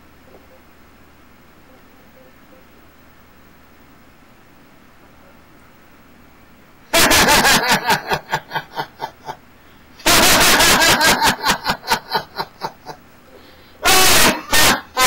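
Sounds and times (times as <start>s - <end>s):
man laughing heartily: 6.9s - 9.4s, 10.0s - 13.0s, 13.8s - 15.0s.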